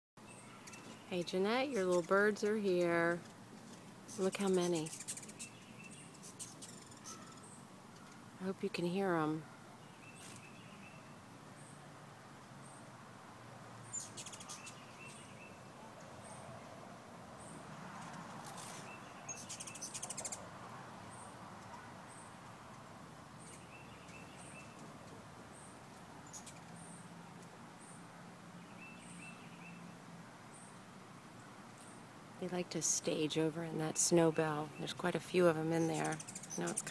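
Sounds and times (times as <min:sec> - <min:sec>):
hummingbird twittering chatter: 0:00.4 - 0:08.2, 0:13.8 - 0:15.6, 0:18.0 - 0:20.4, 0:23.4 - 0:24.8, 0:25.5 - 0:27.0, 0:32.5 - 0:36.9
hummingbird chip notes: 0:32.7 - 0:36.9.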